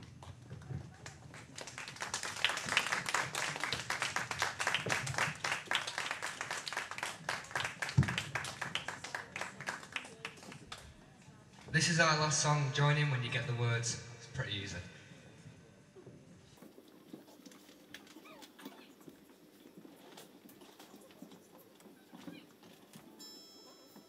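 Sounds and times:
audience applauding: 0:01.0 - 0:10.8.

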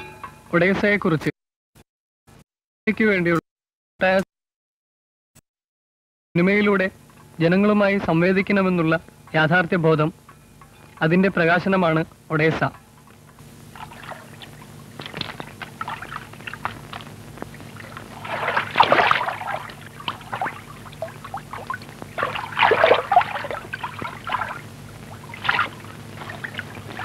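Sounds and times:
low film soundtrack hum: 0:06.4 - 0:27.0
water splashing and sloshing: 0:13.6 - 0:27.0.

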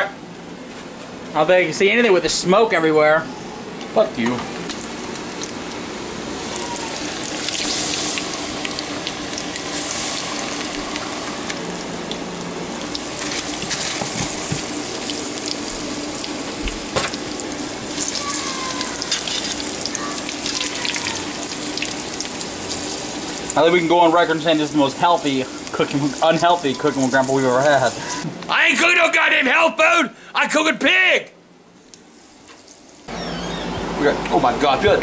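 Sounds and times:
deep-frying sizzle with pops: 0:04.2 - 0:28.2, 0:31.8 - 0:33.1.

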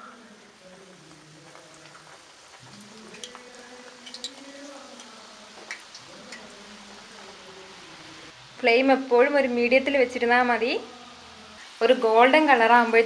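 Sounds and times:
pastries sizzling in hot oil: 0:00.0 - 0:13.0.

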